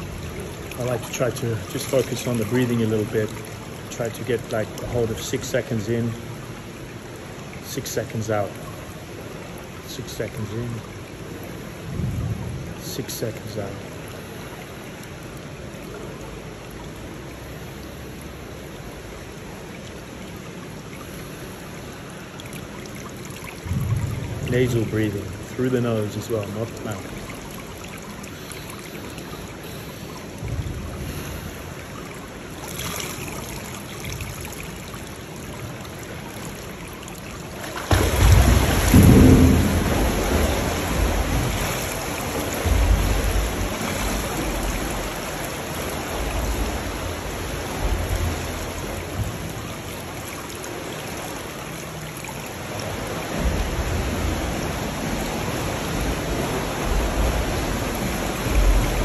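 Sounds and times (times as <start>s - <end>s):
pool water splashing: 0.0s - 59.0s
swimmer kicking and stroking: 37.5s - 49.6s.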